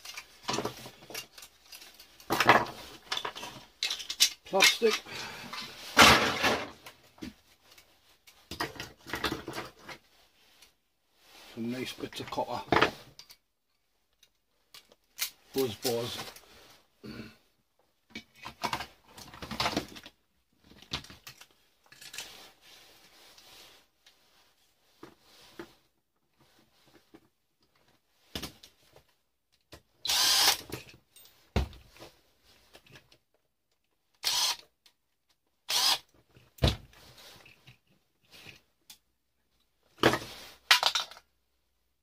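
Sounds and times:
power drill running: 30.1s - 30.6s, 34.2s - 34.6s, 35.7s - 36.0s.

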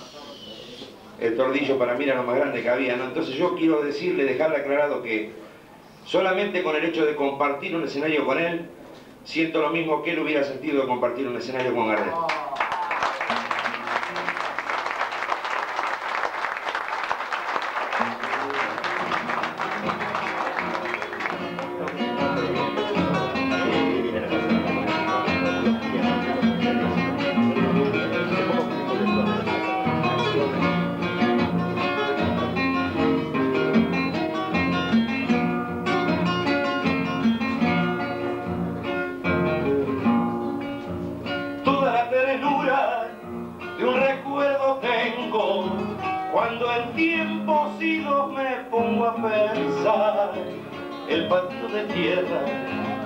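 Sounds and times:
acoustic guitars playing: 12.9s - 53.0s.

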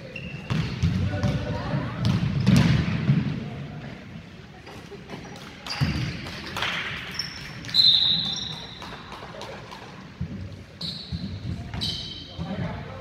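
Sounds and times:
sneakers squeaking: 0.0s - 3.3s, 5.2s - 9.2s, 10.0s - 13.0s.

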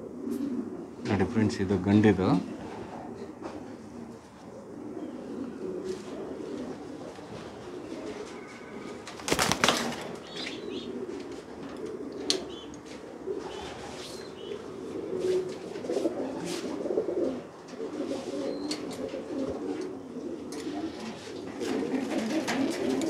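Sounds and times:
pigeons cooing: 0.0s - 23.0s
pigeon wings flapping: 9.0s - 10.3s, 21.5s - 23.0s.

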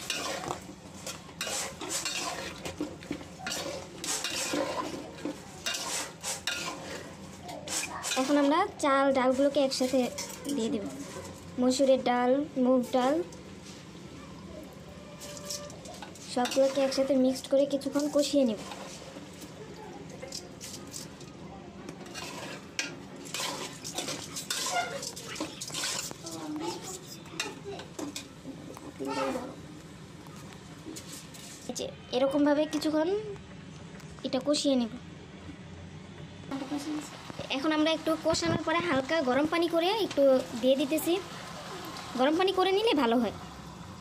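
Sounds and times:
metal spoon scraping bowl: 0.0s - 0.6s, 1.4s - 8.5s, 15.2s - 17.2s, 22.0s - 27.2s.

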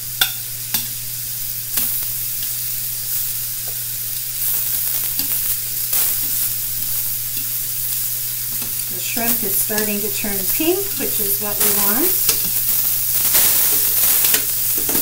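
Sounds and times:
food sizzling in oil: 0.0s - 15.0s
metal tongs clicking on pan: 0.2s - 1.0s, 5.0s - 7.6s, 8.5s - 13.4s, 14.2s - 15.0s.

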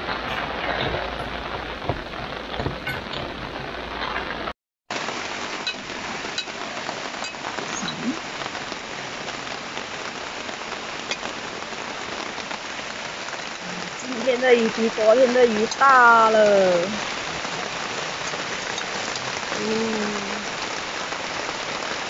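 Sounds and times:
water hissing: 5.4s - 12.4s, 13.6s - 21.6s.

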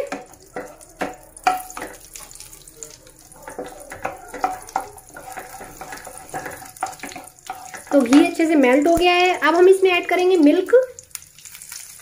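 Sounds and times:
light sizzle: 0.0s - 12.0s
wooden spatula scraping a pan: 3.4s - 8.5s.

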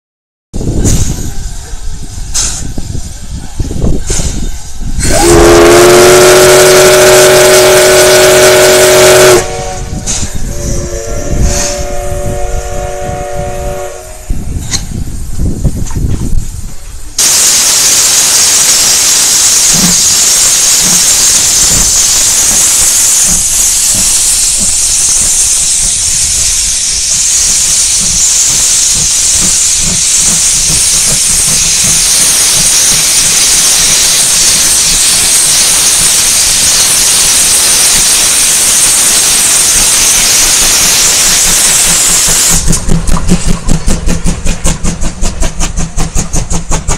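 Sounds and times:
steam hissing from locomotive: 0.6s - 46.9s
locomotive exhaust chuffing: 18.8s - 46.9s.

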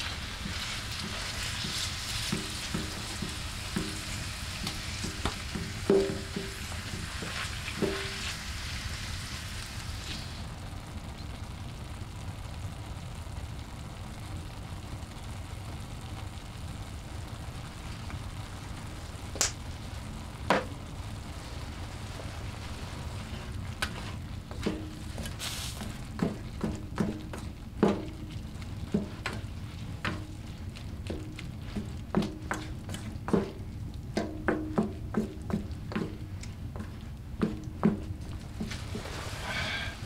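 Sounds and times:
utensil knocking and scraping pan: 0.0s - 8.4s, 23.4s - 33.6s, 34.2s - 39.7s
food sizzling in a frying pan: 0.0s - 40.0s.

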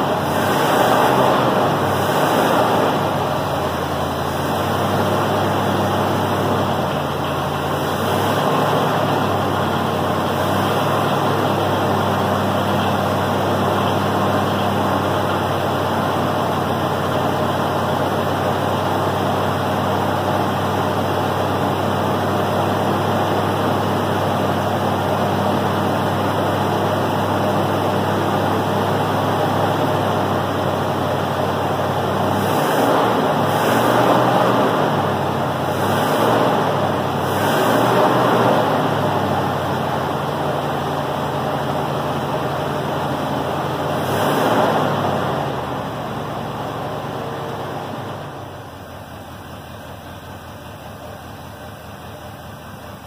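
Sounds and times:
car engine idling: 0.0s - 53.0s.

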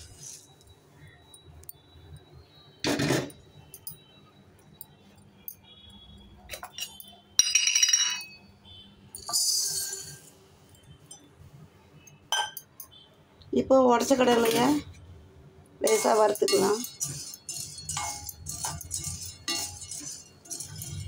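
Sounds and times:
metal utensils clinking: 6.5s - 8.4s, 9.2s - 10.3s, 14.0s - 14.9s, 15.8s - 21.0s.

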